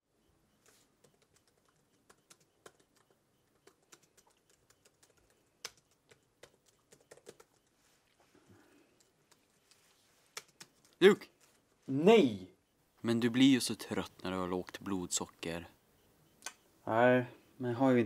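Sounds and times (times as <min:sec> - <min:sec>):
laptop keyboard typing: 0:00.6 - 0:07.9, 0:08.6 - 0:11.0.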